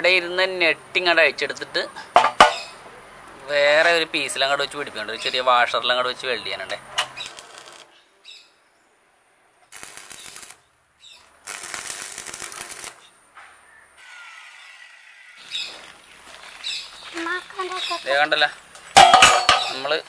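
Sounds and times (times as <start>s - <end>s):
arc welding crackling: 7.0s - 8.0s, 9.6s - 13.1s.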